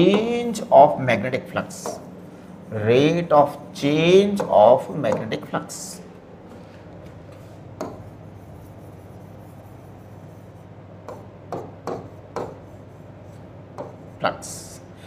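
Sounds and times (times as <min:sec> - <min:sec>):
low electrical hum: 0:00.0 - 0:15.0
pen tapping on glass screen: 0:07.8 - 0:08.1, 0:11.0 - 0:12.6, 0:13.7 - 0:14.0.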